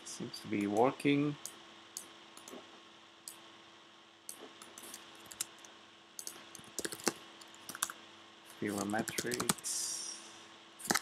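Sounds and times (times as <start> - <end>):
faint steady hum: 0.0 - 11.0
keyboard keystrokes: 6.2 - 8.0.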